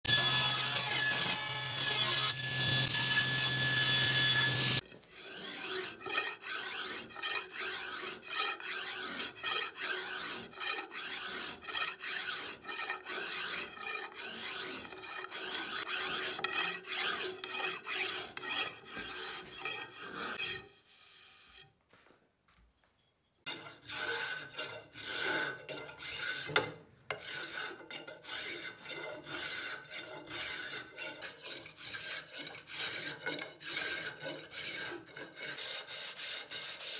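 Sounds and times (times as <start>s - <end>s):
table saw ripping wood: 0.1s - 7.1s.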